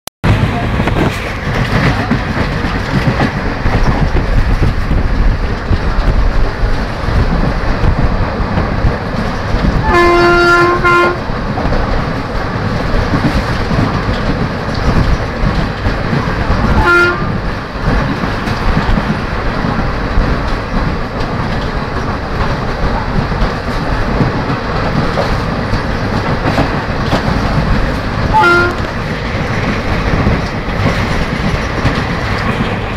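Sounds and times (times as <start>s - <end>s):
train rushing rumble: 0.2s - 32.9s
wheels clattering on track: 0.2s - 32.9s
locomotive horn: 9.8s - 11.2s, 16.8s - 17.4s, 28.3s - 28.9s.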